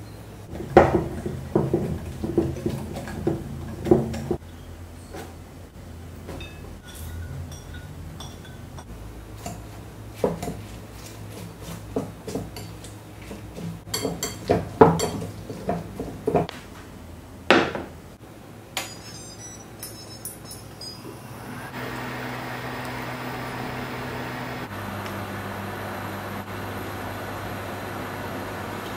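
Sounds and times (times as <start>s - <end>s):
dishware clinking and knocking: 6.3s - 8.9s, 13.9s - 16.5s, 18.8s - 21.0s.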